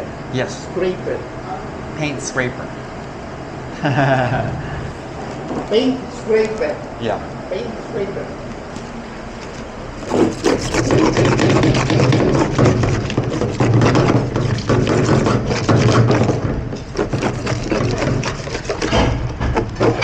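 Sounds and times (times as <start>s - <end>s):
paint scraper scraping: 10.0s - 20.0s.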